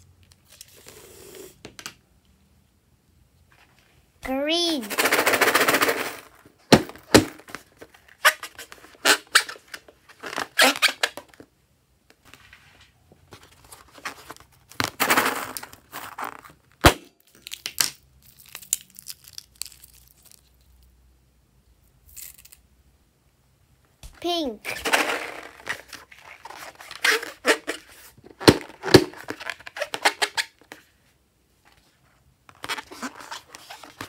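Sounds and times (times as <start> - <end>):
rubber balloon crinkling: 4.9 - 11.4, 24.6 - 30.9, 32.5 - 34.0.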